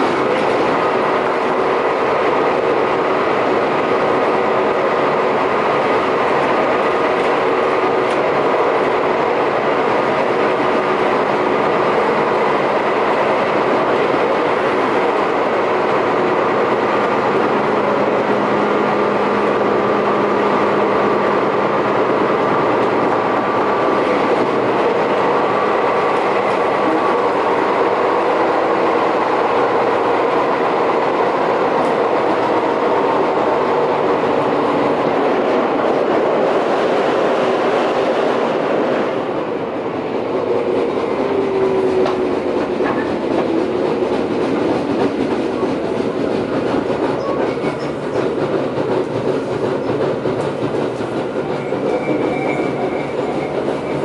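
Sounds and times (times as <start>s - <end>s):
wheel and rail noise: 0.0s - 54.0s
rhythmic wheel pounding: 42.4s - 54.0s.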